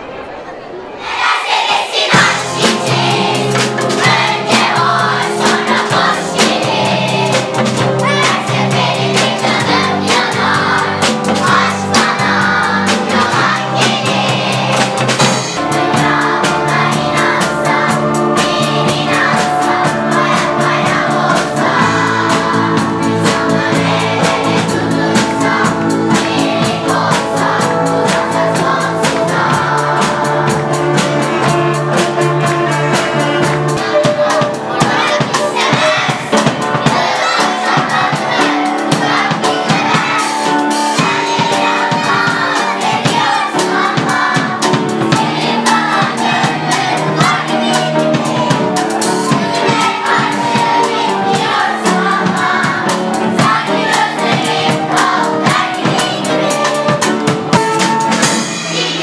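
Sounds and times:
children's choir singing: 0.0 - 59.0
drum kit beat: 1.1 - 59.0
flutes: 56.6 - 58.9.

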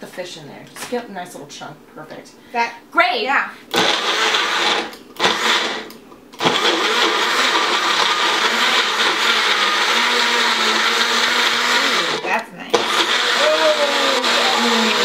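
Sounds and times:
blender running: 3.7 - 15.0.

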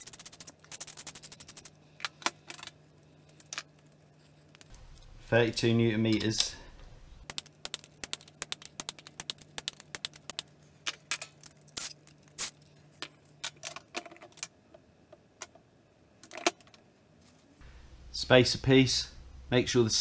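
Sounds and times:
faint low hum: 0.0 - 7.9, 14.7 - 20.0.

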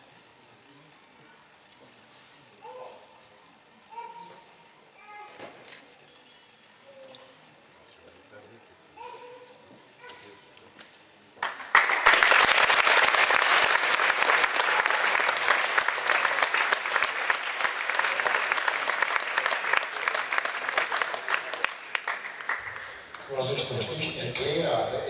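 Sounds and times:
audience applauding: 11.4 - 24.0.

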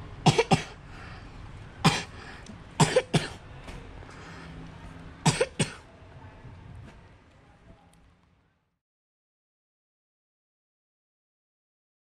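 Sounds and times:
person coughing: 0.3 - 0.8, 1.8 - 2.2, 2.8 - 3.4, 5.3 - 5.8.

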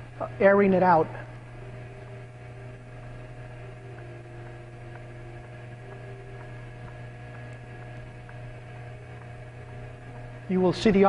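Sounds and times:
low machine hum: 0.0 - 11.0
steady high tones: 0.0 - 11.0.

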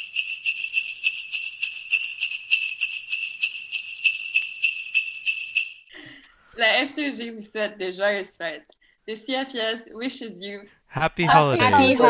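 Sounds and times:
jingle bells shaken: 0.0 - 5.9.

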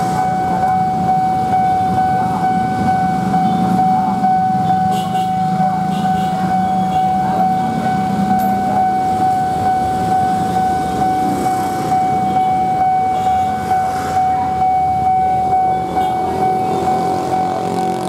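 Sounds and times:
level crossing alarm tone: 0.0 - 18.0
minibus engine running: 0.0 - 18.0
street traffic: 0.0 - 18.0.

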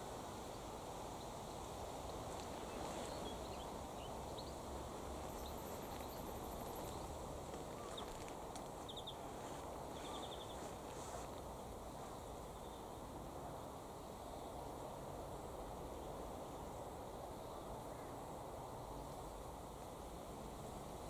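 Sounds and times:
low wind rumble: 0.0 - 21.0
faint bird chirps: 5.2 - 9.3, 9.9 - 10.8.

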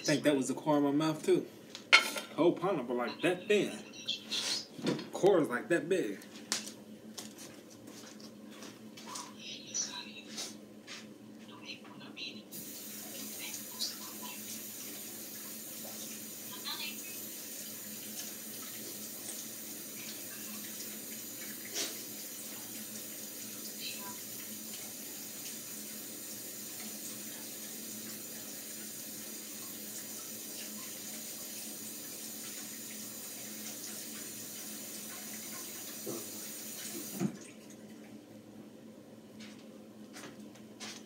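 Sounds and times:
water running from a tap: 12.5 - 37.6.

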